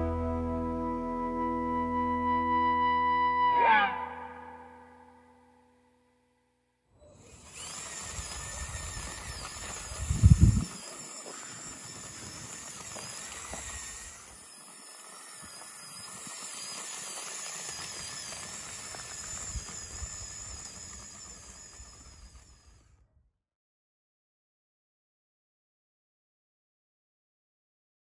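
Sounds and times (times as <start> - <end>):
high whine of electric drive: 7.0 - 23.0
wheels crunching gravel: 7.1 - 22.8.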